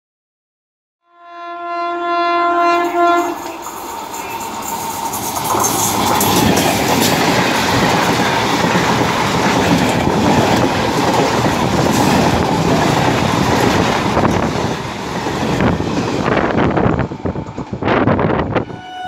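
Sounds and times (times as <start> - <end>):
electric train passing at speed: 2.1 - 19.0
train wheels clattering over rail joints: 3.4 - 18.2.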